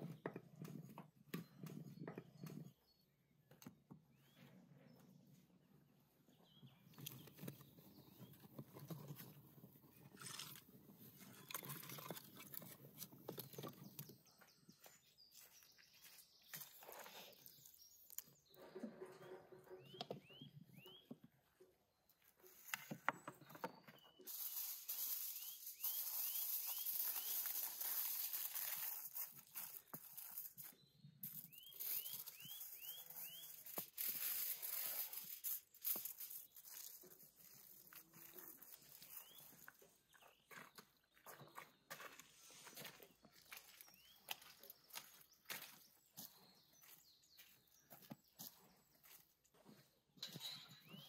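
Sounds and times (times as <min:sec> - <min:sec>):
bird chirping: 0:11.1 - 0:35.4, 0:36.0 - 0:51.0
dishes and utensils clinking: 0:50.2 - 0:51.0.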